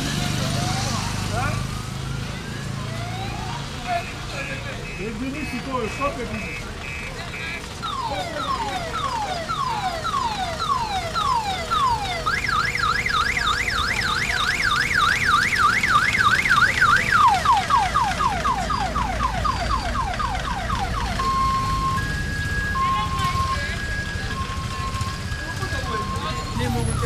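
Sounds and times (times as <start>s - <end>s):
electronic vehicle siren: 0.0s - 27.0s.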